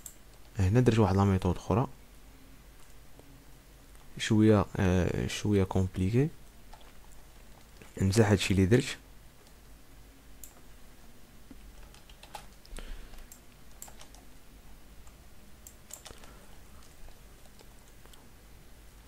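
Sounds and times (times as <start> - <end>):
keyboard and mouse clicks: 0.0 - 0.6, 6.7 - 8.0, 10.4 - 10.7, 11.5 - 14.3, 15.0 - 18.3
low steady hum: 0.0 - 19.0.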